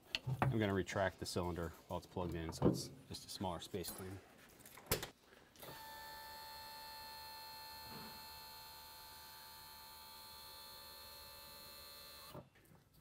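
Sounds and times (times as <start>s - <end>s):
electric actuator motor whining: 5.6s - 12.4s.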